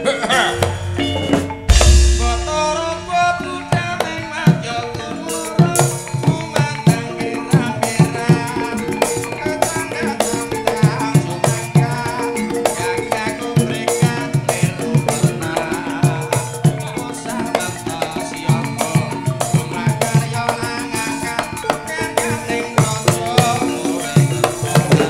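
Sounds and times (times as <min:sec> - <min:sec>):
hand drums: 0:00.0 - 0:25.0
ringing pitched percussion: 0:00.0 - 0:25.0
deep boom: 0:01.5 - 0:04.0.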